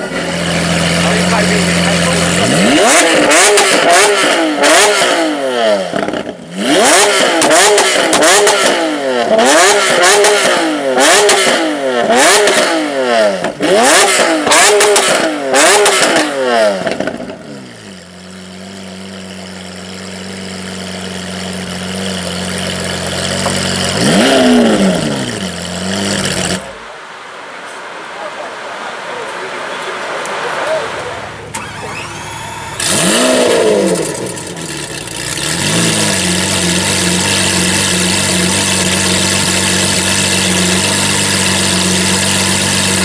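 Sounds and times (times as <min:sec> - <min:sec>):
car engine idling: 0:00.0 - 0:04.8, 0:16.8 - 0:27.0, 0:29.2 - 0:43.0
car engine revving: 0:00.0 - 0:27.0, 0:29.1 - 0:43.0
exhaust cracks and bangs: 0:21.8 - 0:26.8.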